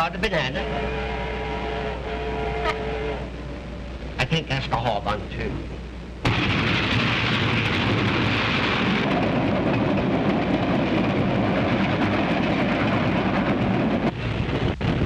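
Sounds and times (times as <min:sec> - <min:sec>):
steam locomotive rushing: 0:07.7 - 0:15.0.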